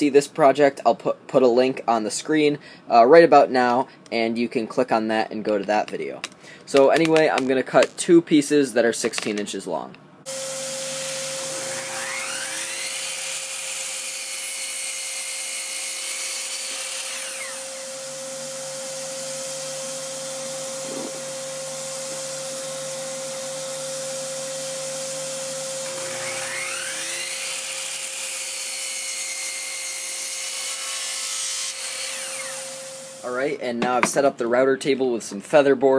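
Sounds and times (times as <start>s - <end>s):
miter saw motor whining: 10.3s - 33.3s
shop vacuum hum: 10.3s - 33.6s.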